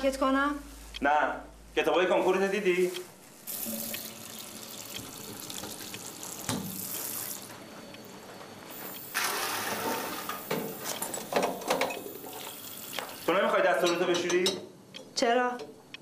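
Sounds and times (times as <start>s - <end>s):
water running from tap: 3.5s - 7.6s, 9.2s - 13.3s.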